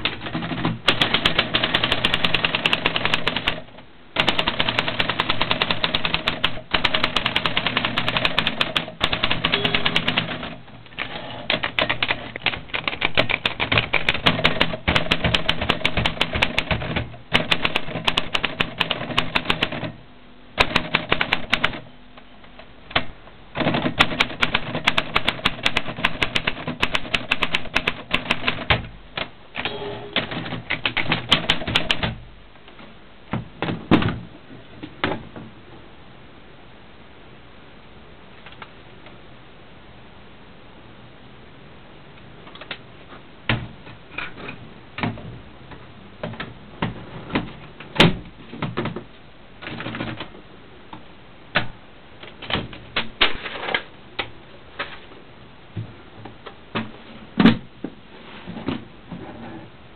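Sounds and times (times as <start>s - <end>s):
manual typewriter typing: 0.0s - 20.0s, 20.6s - 21.9s, 22.9s - 32.2s, 49.6s - 50.3s.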